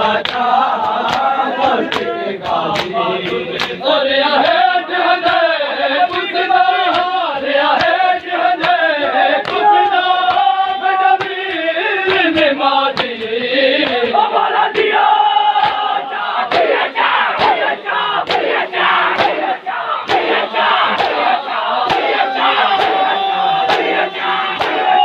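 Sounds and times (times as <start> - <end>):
men chanting in unison: 0.0 - 25.0
hand slaps on bare chests: 0.2 - 3.8, 4.4 - 25.0.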